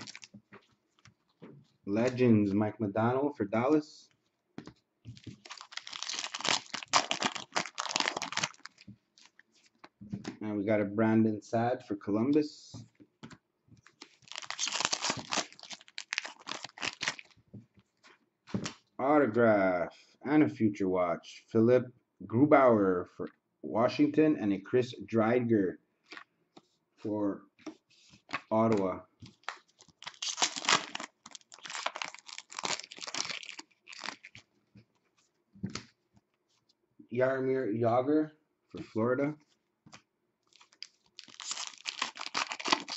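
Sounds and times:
foil wrapper tearing and crinkling: 0:00.0 - 0:00.3, 0:05.2 - 0:09.4, 0:13.9 - 0:17.4, 0:29.4 - 0:34.4, 0:40.5 - 0:42.9
cards clicking and rustling: 0:00.0 - 0:00.7, 0:04.7 - 0:10.4, 0:13.8 - 0:17.4, 0:27.6 - 0:34.4, 0:40.6 - 0:42.9.

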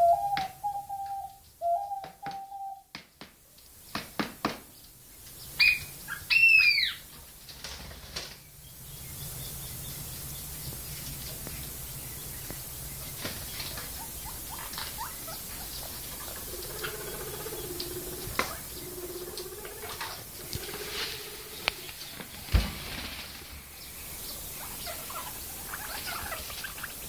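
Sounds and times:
steady low hum: 0:08.5 - 0:27.0
straw rustling: 0:17.8 - 0:26.4.

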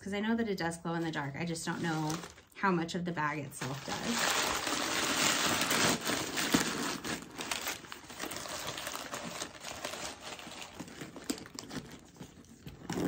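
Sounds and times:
packing paper crinkling: 0:01.6 - 0:02.6, 0:03.6 - 0:13.0.

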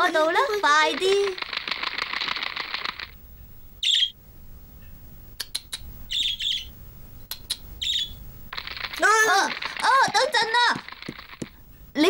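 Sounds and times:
sharp clicks: 0:00.7 - 0:03.2, 0:05.4 - 0:05.9, 0:07.3 - 0:07.7, 0:08.5 - 0:11.6
budgerigar chirping: 0:03.8 - 0:04.2, 0:05.5 - 0:06.8, 0:07.4 - 0:08.2.

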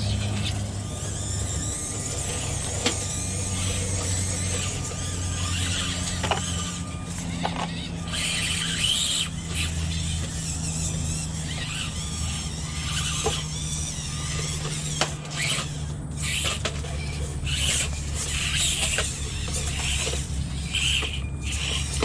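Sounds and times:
clicks of toy trucks on stone: 0:00.0 - 0:22.0
small electric motors whining: 0:00.0 - 0:22.0.

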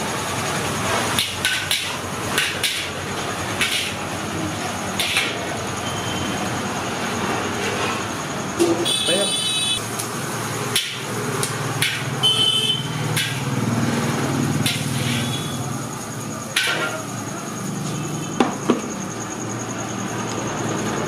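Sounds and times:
metal spatula clacking on wok: 0:11.8 - 0:12.1, 0:13.1 - 0:13.4.

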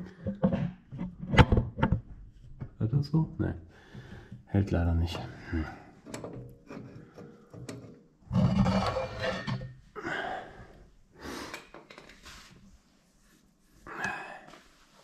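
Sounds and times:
person breathing: 0:03.7 - 0:04.5, 0:05.2 - 0:06.1, 0:06.9 - 0:07.8, 0:10.0 - 0:12.6, 0:13.8 - 0:15.0.

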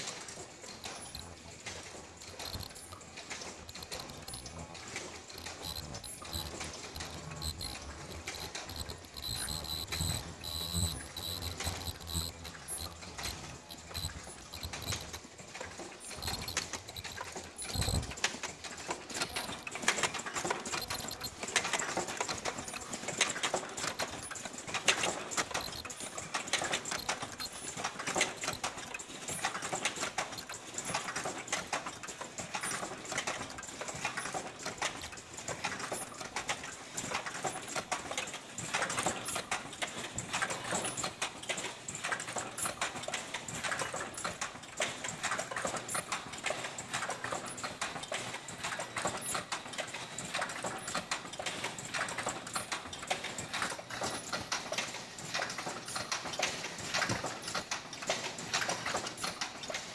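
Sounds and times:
machine clattering: 0:00.0 - 0:59.9.

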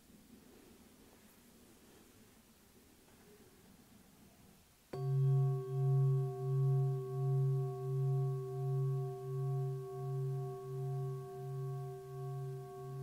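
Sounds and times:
singing bowl ringing: 0:04.9 - 0:13.0.

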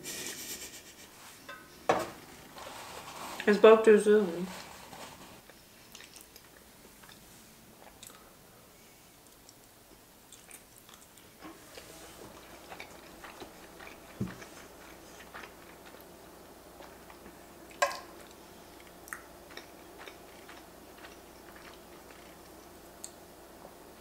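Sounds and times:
person chewing: 0:04.6 - 0:07.2, 0:07.8 - 0:08.3, 0:10.3 - 0:23.2.

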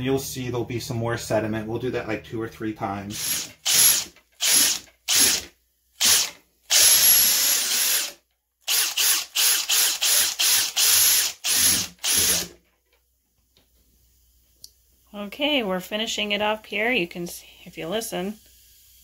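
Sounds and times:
electric drill bursts: 0:03.2 - 0:12.5.

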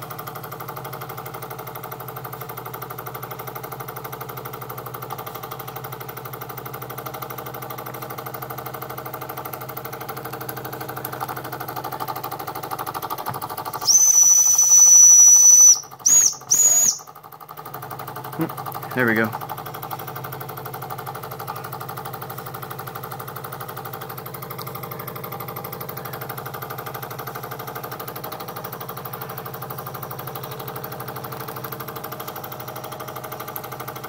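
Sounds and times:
toy steam engine exhaust beat: 0:13.6 - 0:17.2
steam whistle: 0:13.8 - 0:17.0.

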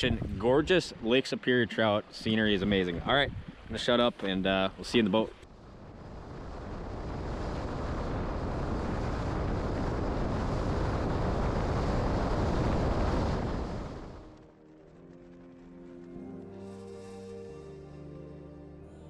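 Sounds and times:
rushing wind and water: 0:00.0 - 0:14.4.

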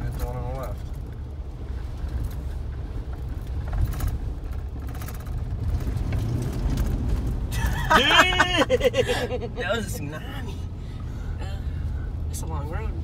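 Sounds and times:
truck engine and tyre rumble: 0:00.0 - 0:13.0.

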